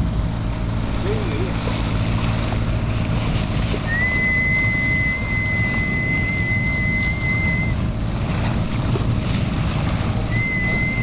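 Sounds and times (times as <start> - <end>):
boat engine rumble: 0.0 - 11.0
water rushing along hull: 0.0 - 11.0
wind on microphone: 1.1 - 11.0
high whistle: 3.9 - 7.8, 10.3 - 11.0.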